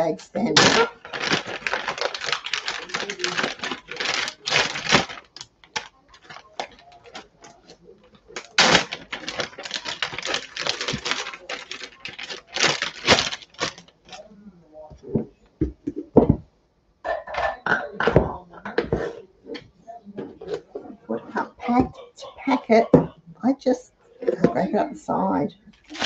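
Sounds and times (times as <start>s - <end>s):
plastic bags crinkling: 0.0s - 14.2s, 25.7s - 26.0s.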